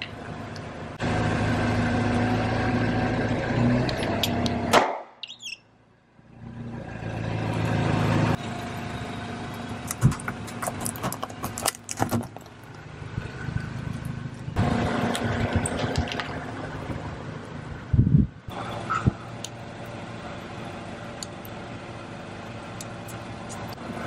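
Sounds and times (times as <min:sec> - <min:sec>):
car engine running: 0:00.0 - 0:04.8, 0:05.8 - 0:24.0
chalk crunching under tyre: 0:09.5 - 0:16.4.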